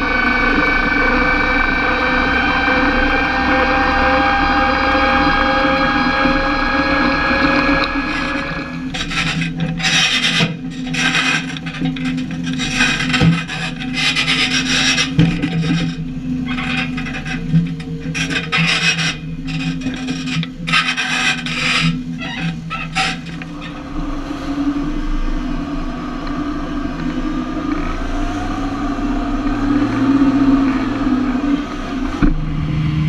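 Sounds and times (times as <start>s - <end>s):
tractor engine and transmission whine: 0.0s - 33.0s
rasping scraping noise: 3.5s - 24.6s.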